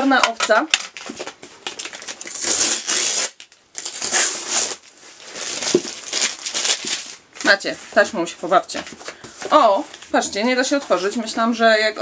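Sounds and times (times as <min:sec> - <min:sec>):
wrapping crinkling: 0:00.6 - 0:11.2
packing tape tearing off: 0:00.8 - 0:07.5.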